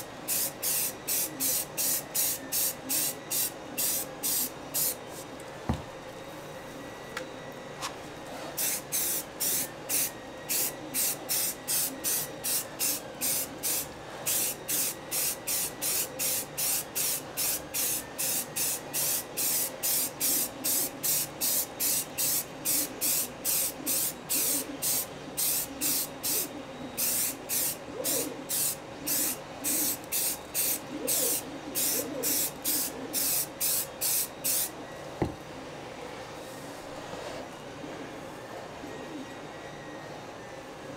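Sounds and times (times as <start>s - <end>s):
aerosol can spraying in bursts: 8.6s - 34.7s.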